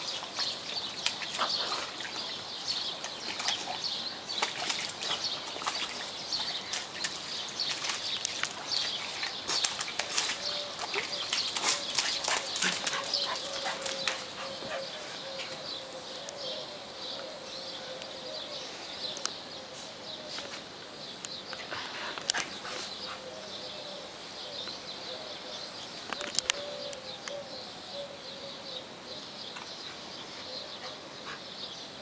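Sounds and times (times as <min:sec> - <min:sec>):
birds chirping: 0:00.0 - 0:32.0
bird cooing calls: 0:10.0 - 0:20.6, 0:22.3 - 0:29.3, 0:30.4 - 0:31.5.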